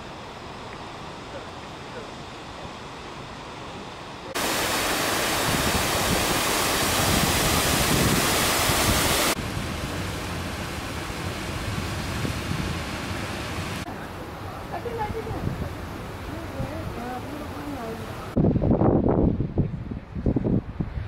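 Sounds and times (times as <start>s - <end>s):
outdoor wash: 0.0s - 19.1s
fountain water splashing into basin: 4.4s - 13.9s.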